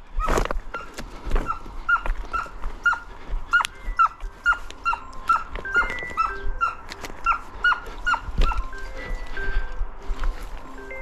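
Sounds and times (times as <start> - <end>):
hound yelping: 0.7 - 9.2.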